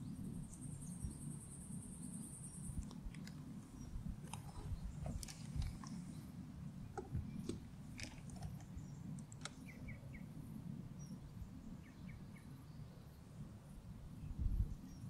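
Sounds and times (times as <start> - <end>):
small bird chirping: 0.0 - 10.4.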